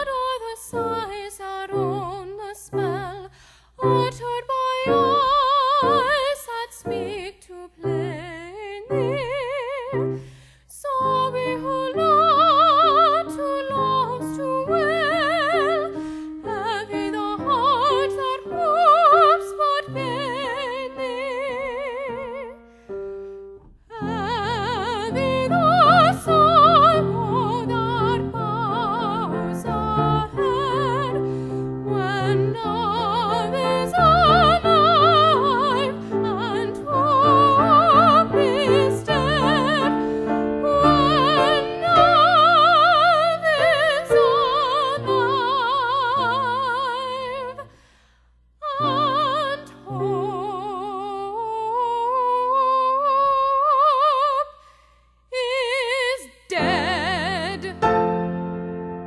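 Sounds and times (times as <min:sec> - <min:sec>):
woman singing classical: 0:00.0 - 0:47.8, 0:48.6 - 0:59.0
piano accompaniment: 0:03.8 - 0:47.6, 0:56.6 - 0:59.0.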